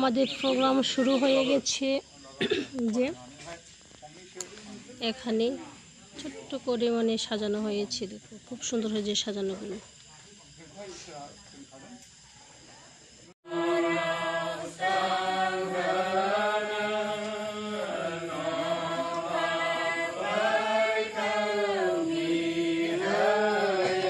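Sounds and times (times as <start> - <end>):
steady low hum: 0.0 - 24.0
person chanting: 13.5 - 24.0.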